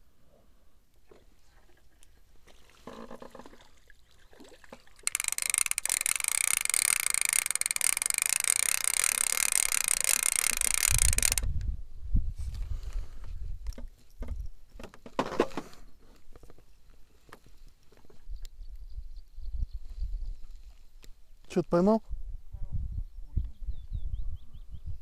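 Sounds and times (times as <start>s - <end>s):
fishing reel ticking: 5.0s - 11.5s.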